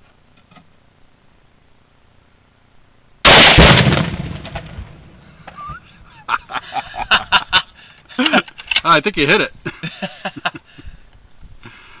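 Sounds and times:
rifle shot: 3.2s - 5.2s
explosive target boom: 3.3s - 5.2s.

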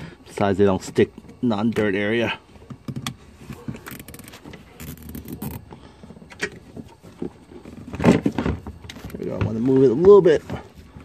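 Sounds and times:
rustling and scraping: 0.9s - 11.0s
zip tie ratcheting: 3.8s - 5.6s.

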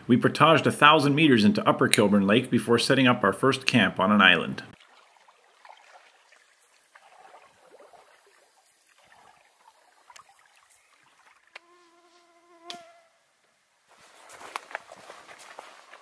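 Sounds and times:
faint lakeside ambience: 0.0s - 16.0s
flying insect buzzing: 7.8s - 13.2s.

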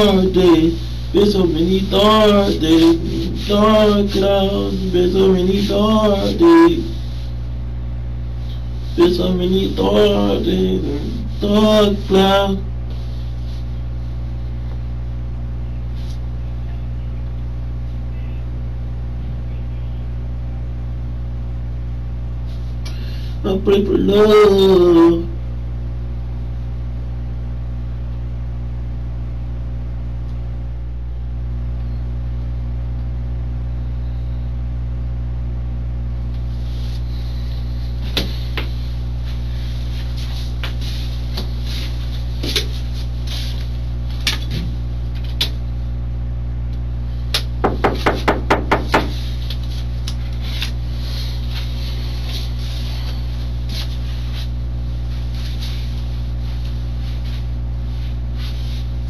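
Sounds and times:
low steady hum: 0.0s - 59.0s
knocks and shuffles: 38.0s - 45.4s
knocking on door: 47.6s - 49.2s.

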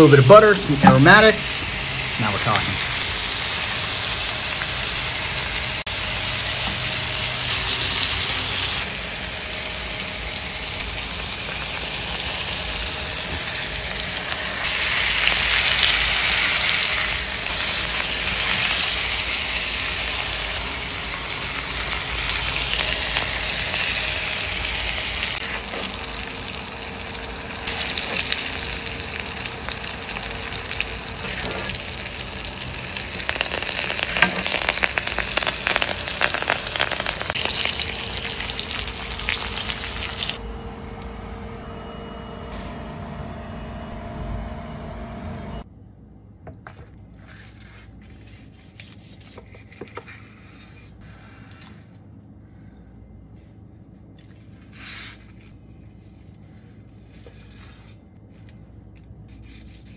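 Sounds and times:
steak sizzling in a pan: 10.2s - 40.4s
crackling spatters: 32.6s - 40.4s.

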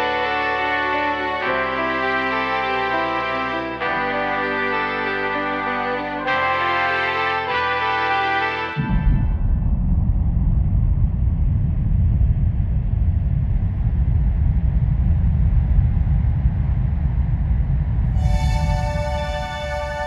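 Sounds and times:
pitched music: 0.0s - 9.3s, 18.2s - 20.0s
deep steady rumble: 8.8s - 20.0s.

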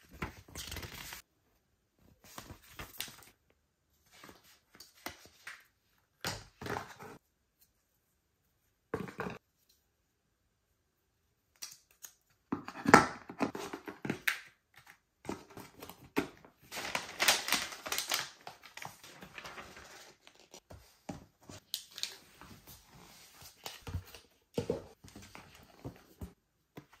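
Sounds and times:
paper sheet rustling: 16.7s - 20.6s.

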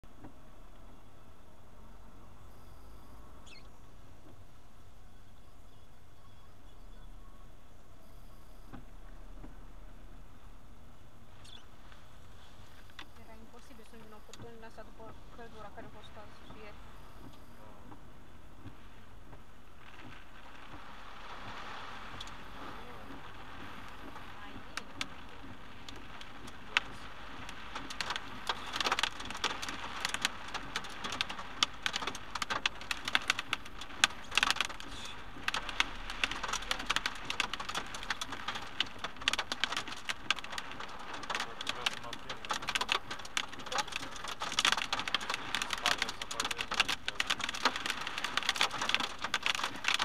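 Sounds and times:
rain on car windscreen and roof: 0.0s - 50.0s
heavy raindrops hitting: 11.2s - 50.0s.

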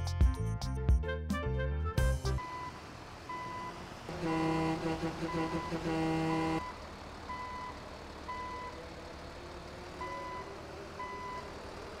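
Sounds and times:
reversing alarm beeping: 2.4s - 3.8s, 5.3s - 8.8s, 10.0s - 11.5s.

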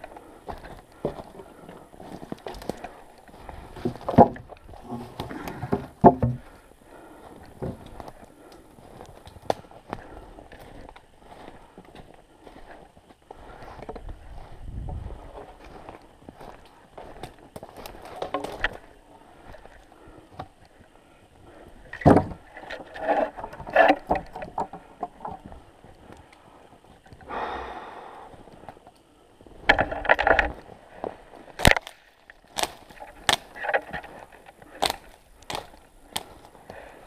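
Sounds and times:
branches rustling: 0.0s - 37.0s
dry twigs snapping: 2.0s - 5.6s, 7.4s - 12.0s, 16.6s - 18.9s, 31.5s - 37.0s.

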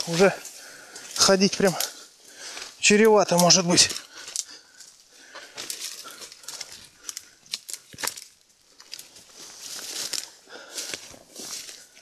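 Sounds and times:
brush rustling and crackling: 0.0s - 12.0s
twigs snapping: 0.0s - 12.0s.

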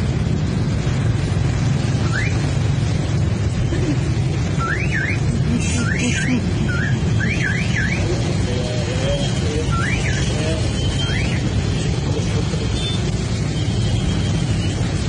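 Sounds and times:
electronic siren whooping: 2.0s - 2.6s, 4.5s - 8.2s, 9.6s - 11.6s.

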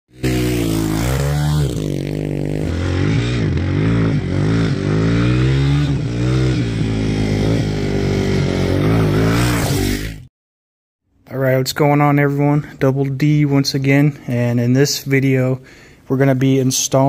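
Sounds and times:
motorcycle engine revving: 0.1s - 10.3s.

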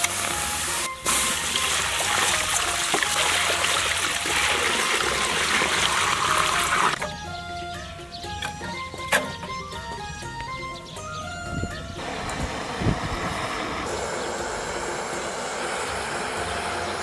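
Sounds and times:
water pouring into metal pot: 0.0s - 7.0s.

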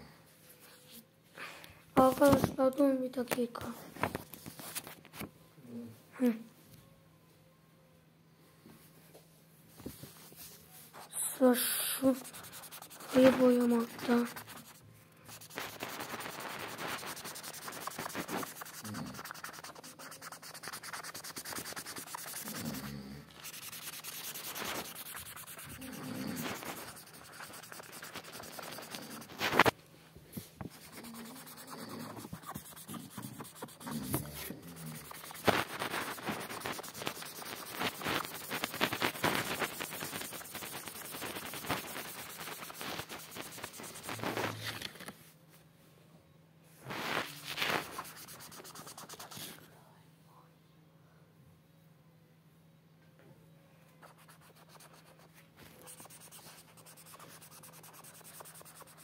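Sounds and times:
marker scribbling on paper: 11.0s - 29.7s, 30.7s - 44.5s, 47.2s - 49.6s, 54.0s - 59.0s.

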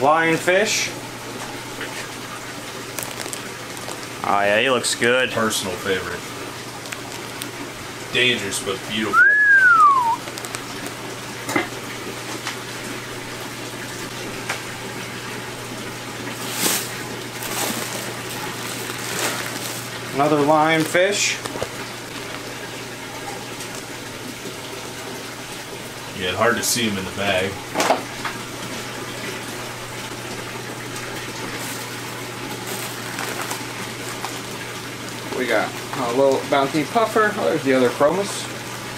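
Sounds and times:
low pump hum: 0.0s - 38.9s
running water rushing: 0.0s - 38.9s
plastic bag crinkling: 2.8s - 4.3s, 10.2s - 11.0s, 16.3s - 22.5s, 31.4s - 35.4s.

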